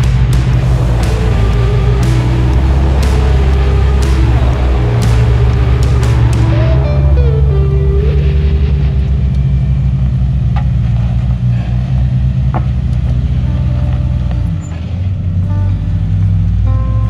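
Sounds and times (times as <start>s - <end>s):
engine running at low revs: 0.0s - 17.0s.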